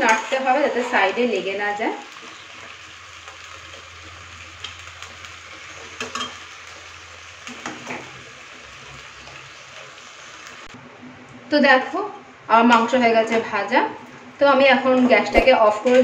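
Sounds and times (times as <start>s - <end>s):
chicken sizzling in hot oil: 0.0s - 10.8s.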